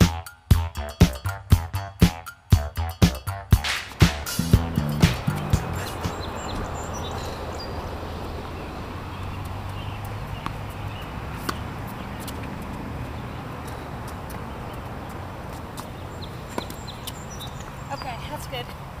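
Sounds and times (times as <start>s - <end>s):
funk music with guitar: 0.0s - 6.2s.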